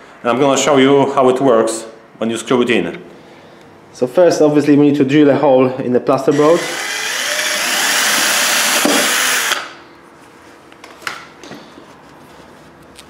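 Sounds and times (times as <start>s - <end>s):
cordless drill drilling plasterboard: 6.3s - 9.8s.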